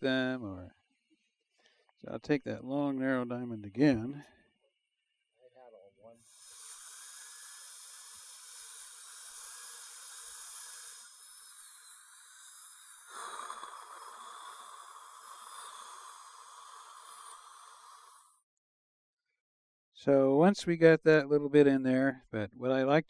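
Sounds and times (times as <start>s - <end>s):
dental drill whine: 6.2s - 18.4s
water spray hiss: 6.3s - 18.3s.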